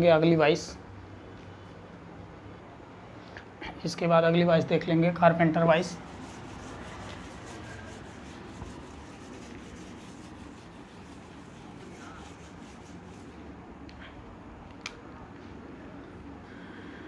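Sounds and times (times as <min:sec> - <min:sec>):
duster rubbing whiteboard: 0:05.7 - 0:13.6.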